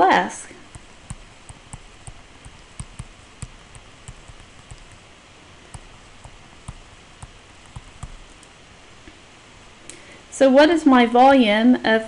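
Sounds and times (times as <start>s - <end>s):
steady background hiss: 0.0s - 12.0s
stylus tapping on tablet screen: 0.6s - 5.1s, 5.7s - 8.5s.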